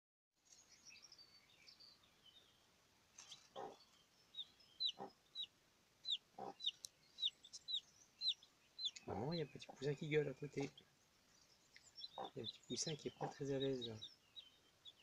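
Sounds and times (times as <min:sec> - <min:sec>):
chicks peeping: 0:03.2 - 0:10.8, 0:11.7 - 0:15.0
hen clucking: 0:03.3 - 0:03.8, 0:04.8 - 0:10.8, 0:12.0 - 0:14.1.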